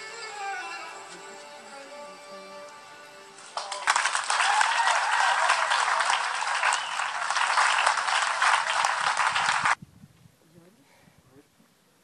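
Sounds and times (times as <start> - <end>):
soft music with sustained notes: 0.0 - 4.4
loud clapping: 3.5 - 9.8.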